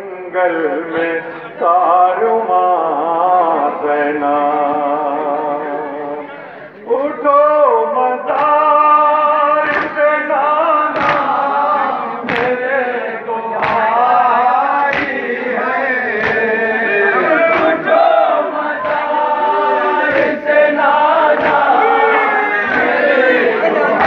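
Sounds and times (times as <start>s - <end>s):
men chanting together: 7.8s - 24.0s.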